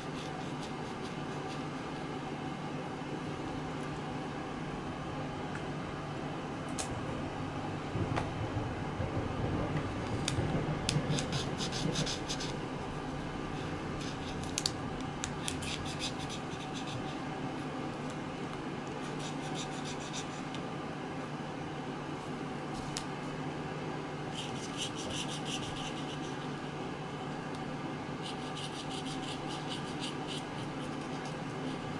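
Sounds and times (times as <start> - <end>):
steady low hum: 0.0 - 31.9
felt-tip marker scratching paper: 11.1 - 12.6, 15.4 - 17.2, 19.0 - 20.4, 24.3 - 26.5, 28.2 - 31.9.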